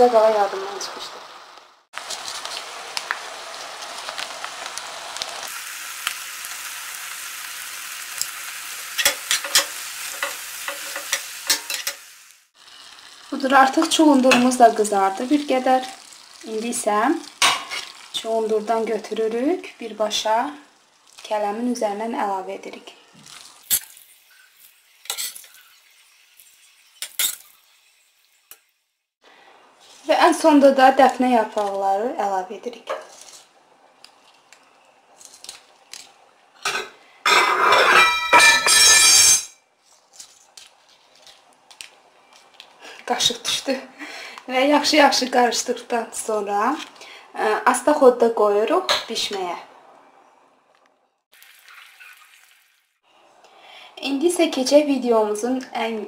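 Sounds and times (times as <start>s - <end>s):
vegetables sizzling in oil: 0.0s - 49.6s
metal spoon scraping pan: 8.9s - 12.0s, 23.7s - 25.8s, 36.7s - 39.5s.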